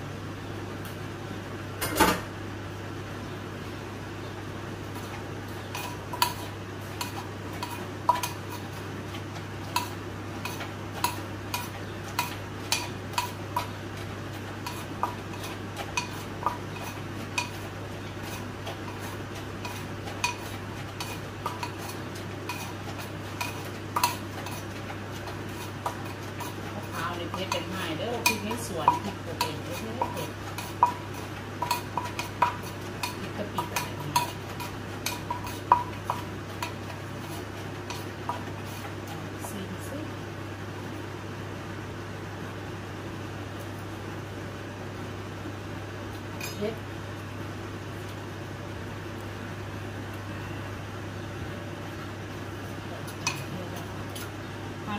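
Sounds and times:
steady low hum: 0.0s - 54.9s
pestle scraping and mixing: 4.9s - 39.6s, 51.9s - 54.4s
pestle pounding in a mortar: 5.8s - 8.6s, 14.6s - 17.6s, 18.3s - 39.6s.

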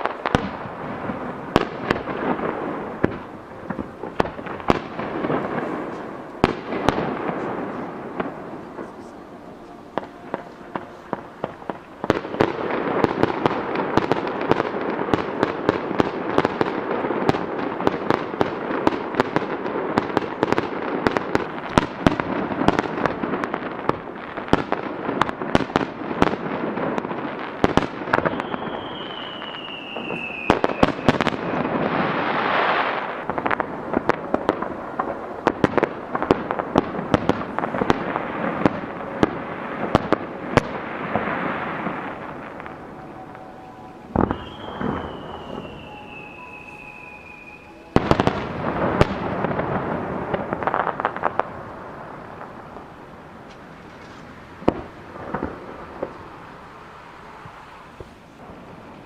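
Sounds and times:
descending firework whistle: 0.0s - 17.5s, 27.3s - 33.3s, 37.8s - 53.2s, 54.6s - 59.0s
fireworks bangs and crackles: 0.0s - 59.0s.

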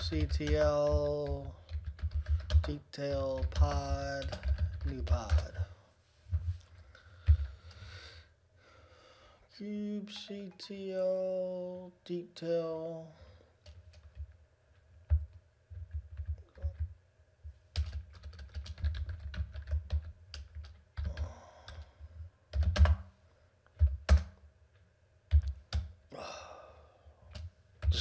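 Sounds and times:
typing on computer keyboard: 0.0s - 5.6s, 15.1s - 16.9s, 17.7s - 21.9s, 22.5s - 23.1s, 23.8s - 24.4s, 25.3s - 25.9s.

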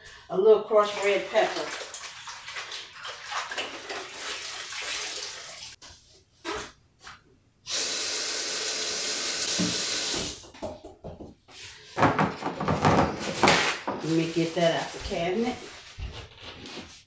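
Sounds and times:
water splashes: 0.7s - 5.8s
faucet running: 0.8s - 5.8s, 7.7s - 10.4s.

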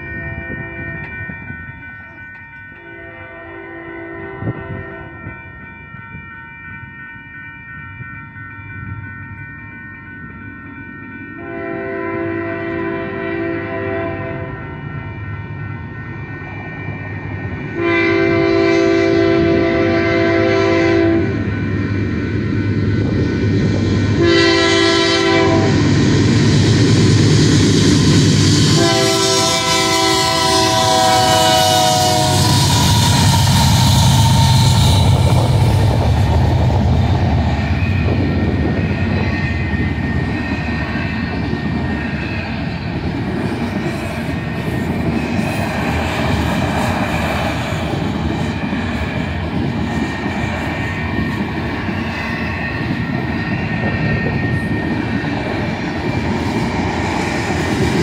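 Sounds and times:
freight train rumble and clickety-clack: 0.0s - 58.0s
locomotive air horn blasts: 2.8s - 5.2s, 11.4s - 14.5s, 17.8s - 21.4s, 24.2s - 25.9s, 28.6s - 33.8s.

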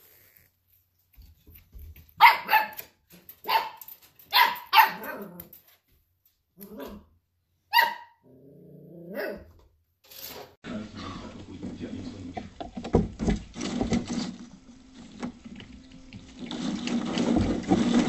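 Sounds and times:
puppy barking: 2.1s - 5.5s, 6.6s - 7.1s, 7.7s - 8.3s, 9.0s - 9.5s
puppy growling: 8.2s - 9.4s.

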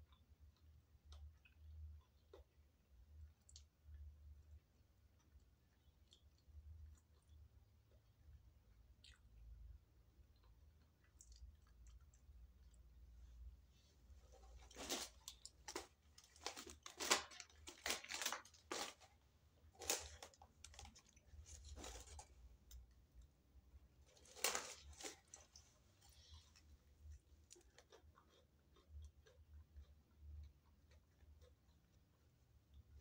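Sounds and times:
paper wrappers rustling: 14.2s - 22.5s, 24.1s - 26.6s.

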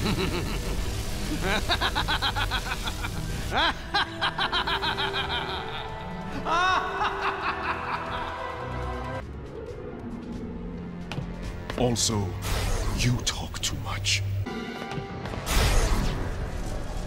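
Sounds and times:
cartoon villains laughing: 0.0s - 8.6s
background music: 0.0s - 17.0s.

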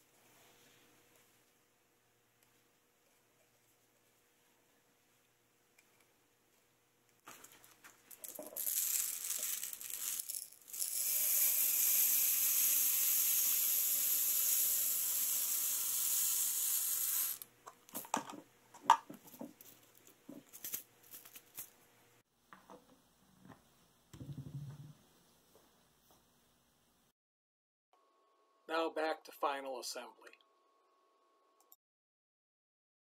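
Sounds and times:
pellets pouring into a tube: 8.1s - 17.4s.

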